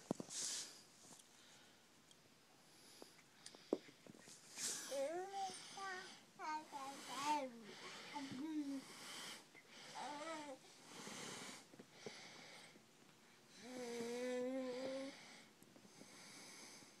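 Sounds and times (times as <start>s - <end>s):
person snore-like breathing: 13.6s - 15.3s.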